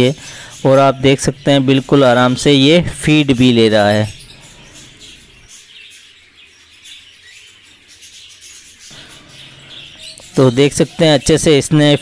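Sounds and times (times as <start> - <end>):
parrot chick begging chirps: 3.2 - 10.6.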